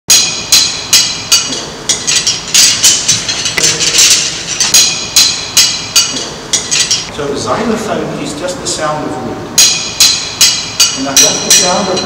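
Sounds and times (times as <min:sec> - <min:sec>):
xylophone bars being struck: 0:00.1 - 0:07.1, 0:09.6 - 0:12.0.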